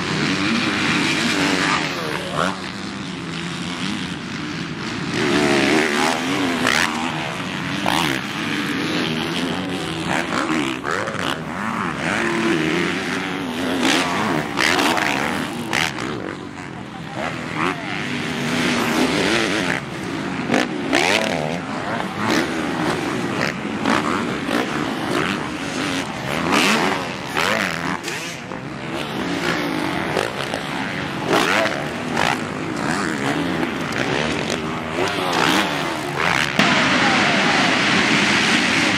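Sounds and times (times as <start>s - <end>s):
motocross bike engines revving: 0.0s - 38.9s.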